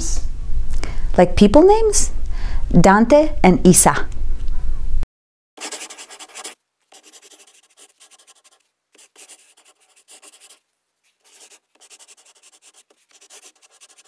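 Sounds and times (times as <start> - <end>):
dry scratching: 5.6 - 14.0.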